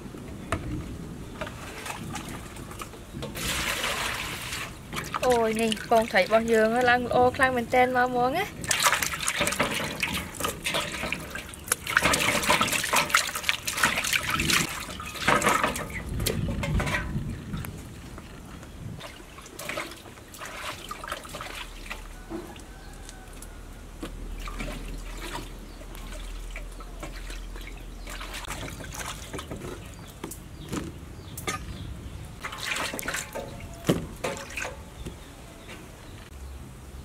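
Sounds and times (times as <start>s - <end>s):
hands washing food in water: 1.6s - 7.6s, 8.6s - 17.1s, 19.0s - 30.5s, 32.4s - 35.1s.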